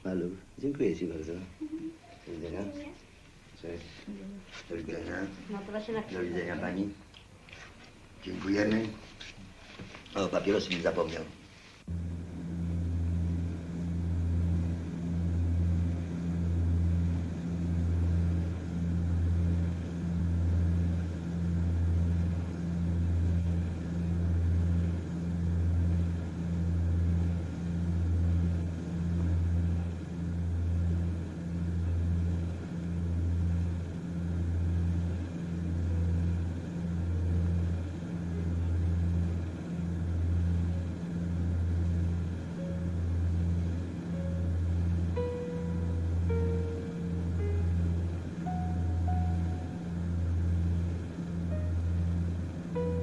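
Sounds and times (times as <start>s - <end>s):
airliner cabin drone: 11.8s - 53.0s.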